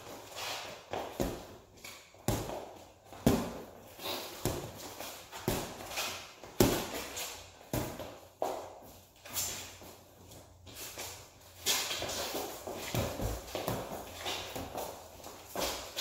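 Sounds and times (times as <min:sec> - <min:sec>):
boxing gloves smacking: 0:00.9 - 0:08.6, 0:11.6 - 0:16.0.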